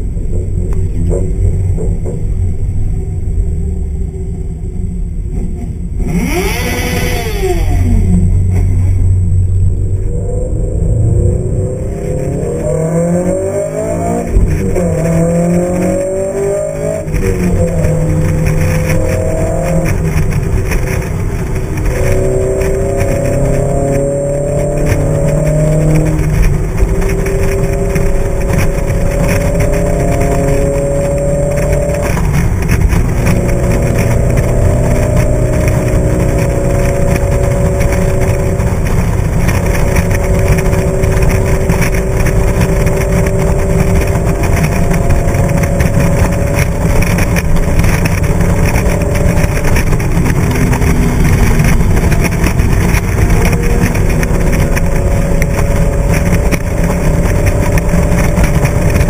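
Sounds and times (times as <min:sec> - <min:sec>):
engine drone: 0:00.0 - 0:59.0
road noise: 0:00.0 - 0:59.0
wind rumble: 0:00.0 - 0:59.0.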